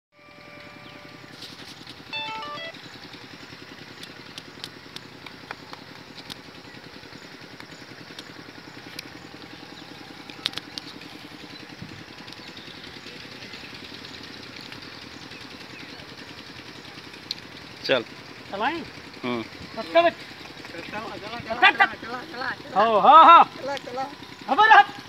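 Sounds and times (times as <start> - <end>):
small engine idling: 0.2 - 25.0
sharp clicks: 4.0 - 6.5, 7.6 - 9.5, 10.2 - 11.1.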